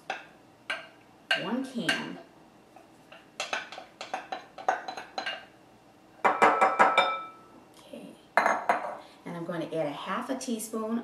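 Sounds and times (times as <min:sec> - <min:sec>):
glass clinks ringing: 0:06.3 - 0:07.5.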